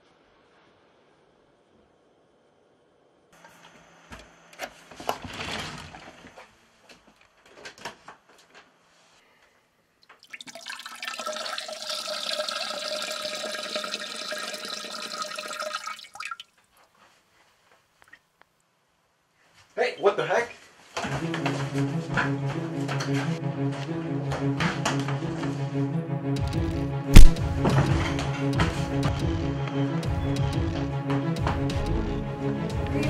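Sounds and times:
toilet flushing: 10.2 - 16.4
splashes and clicks: 27.2 - 27.4.

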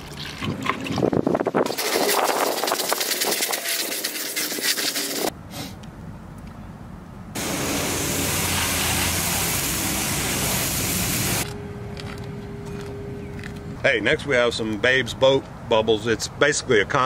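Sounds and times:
brush scrubbing boat hull: 1.8 - 5.3
hose nozzle spray hissing: 1.8 - 5.3, 7.4 - 11.4
water splashing on pavement: 7.4 - 11.4.

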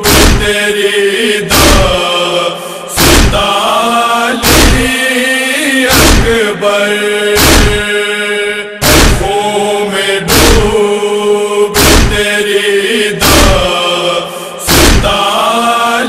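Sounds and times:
heavy chest-beating thumps: 0.0 - 0.5, 1.5 - 2.0, 3.0 - 3.5, 4.4 - 4.9, 5.9 - 6.4, 7.4 - 7.9, 8.8 - 9.3, 10.3 - 10.8, 11.8 - 12.2, 13.2 - 13.7, 14.7 - 15.2
wordless chanted vocal: 0.0 - 16.0.

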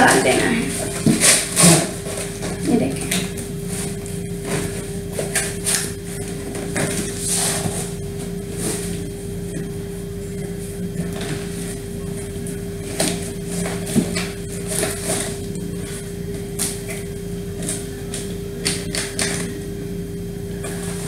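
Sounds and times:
cardboard scraping and rustling: 0.0 - 2.7, 3.6 - 9.2, 12.8 - 16.0
steady low hum: 0.0 - 21.0.

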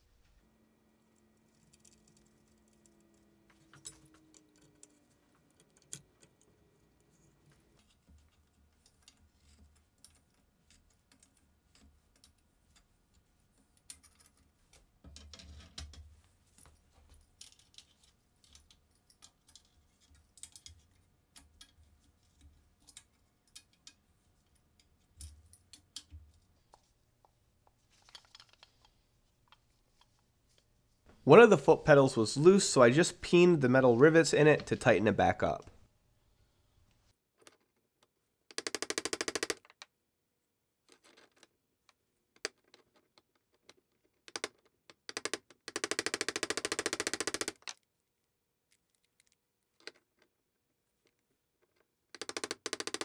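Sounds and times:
metal parts clicking and tapping: 7.2 - 26.9, 28.0 - 30.2, 38.5 - 39.9, 42.4 - 47.8, 48.7 - 50.3, 51.1 - 53.0.

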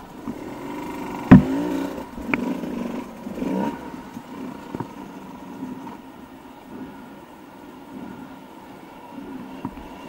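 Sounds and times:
dirt bike engine revving: 0.0 - 7.3.

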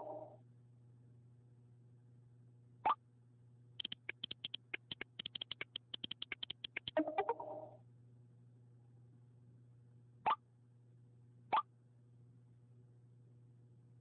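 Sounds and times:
low steady hum: 0.0 - 14.0
phone keyboard clicks: 3.8 - 7.4.

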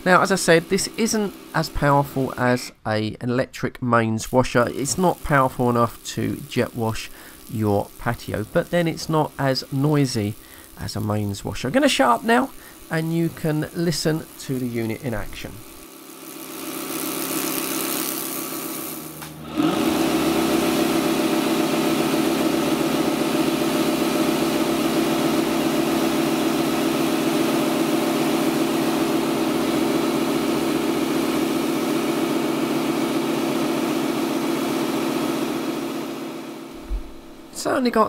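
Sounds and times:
pump hum: 0.0 - 2.4, 4.4 - 37.6
pressure washer jet hissing: 0.0 - 2.6, 4.2 - 37.6.

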